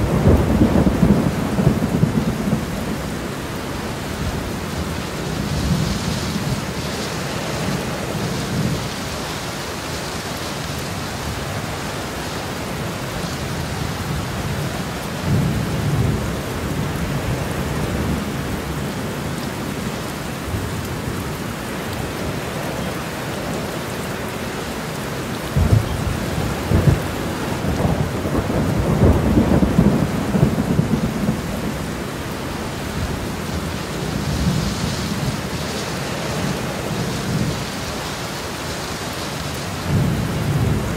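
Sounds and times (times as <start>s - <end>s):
thunder rumbling: 0.0s - 9.0s, 25.4s - 37.8s
steady rain falling: 0.0s - 40.9s.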